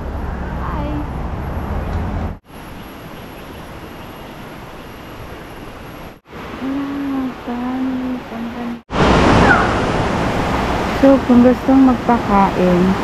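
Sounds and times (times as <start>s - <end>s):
rushing river: 6.2s - 13.0s.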